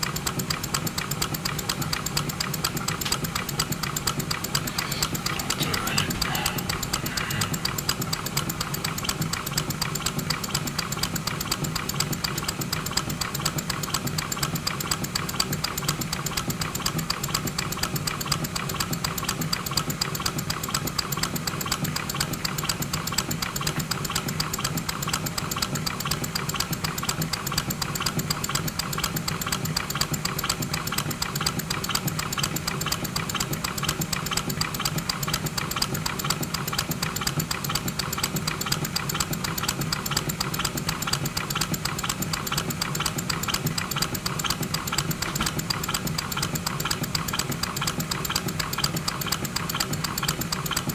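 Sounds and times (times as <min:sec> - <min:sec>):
model air engine chattering: 0:00.0 - 0:50.9.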